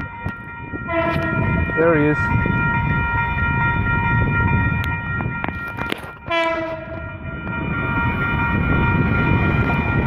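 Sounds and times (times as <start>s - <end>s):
electric train rumble: 0.0s - 10.0s
train horn blast: 0.9s - 1.6s, 6.2s - 7.2s.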